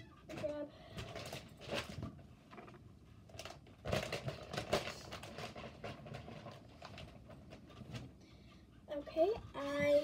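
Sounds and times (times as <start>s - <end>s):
package rustling and knocking: 1.0s - 8.1s.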